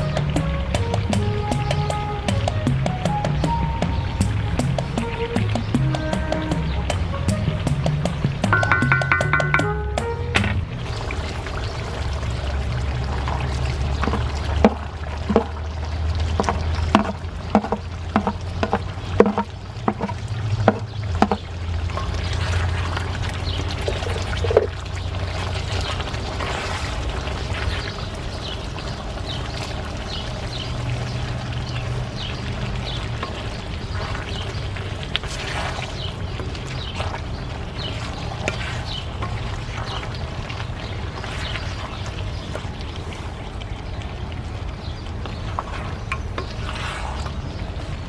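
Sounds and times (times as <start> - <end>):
stew bubbling: 0.0 - 48.0
wooden spoon knocking on pan: 7.8 - 10.6, 14.1 - 15.5, 16.4 - 21.5.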